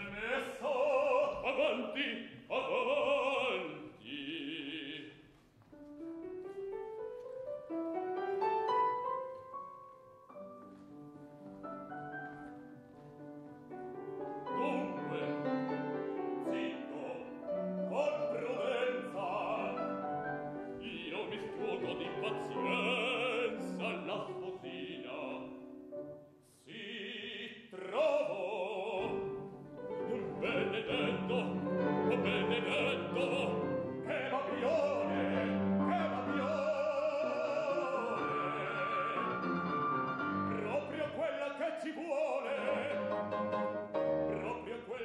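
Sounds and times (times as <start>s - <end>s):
operatic baritone man singing: 0.0s - 5.3s, 14.4s - 25.9s, 26.5s - 45.0s
grand piano accompaniment: 0.0s - 45.0s.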